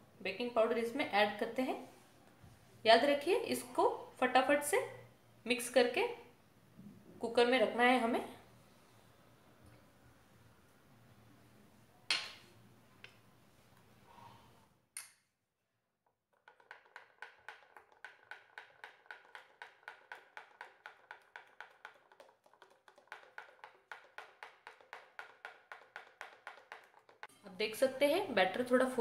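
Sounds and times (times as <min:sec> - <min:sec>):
ladle beating batter in glass bowl: 0:16.2 - 0:27.3.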